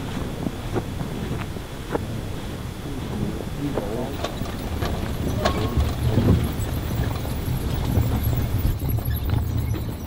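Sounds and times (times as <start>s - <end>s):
vehicle engine rumble: 0.0s - 10.0s
vehicle body knocks and rattles: 4.1s - 10.0s.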